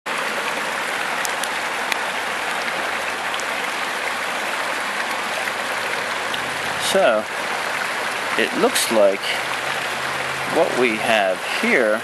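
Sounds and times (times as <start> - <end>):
river water flowing: 0.1 - 12.0.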